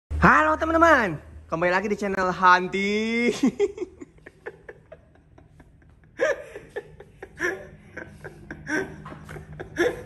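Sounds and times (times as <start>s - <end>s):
person laughing: 3.2s - 10.0s.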